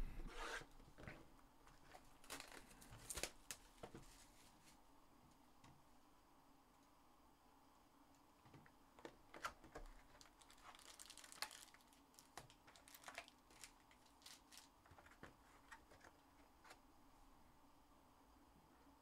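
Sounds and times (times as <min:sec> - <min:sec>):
packaging crinkling: 0:01.8 - 0:03.7, 0:09.4 - 0:16.7.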